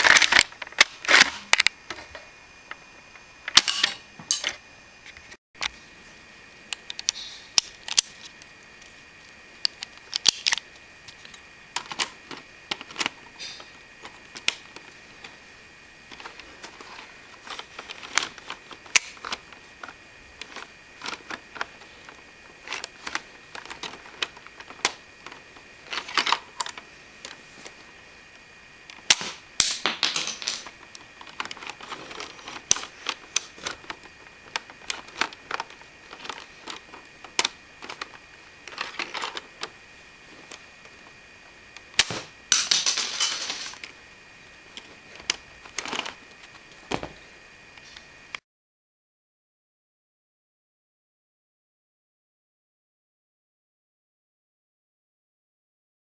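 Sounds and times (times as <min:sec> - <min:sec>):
plastic mechanism clicks and snaps: 0:32.5 - 0:38.1.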